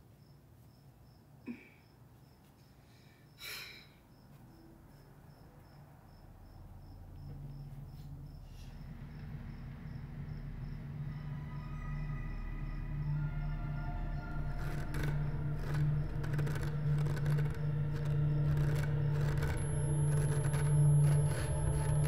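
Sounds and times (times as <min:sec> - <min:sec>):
cricket chirping: 0:00.0 - 0:22.0
low hum: 0:06.2 - 0:22.0.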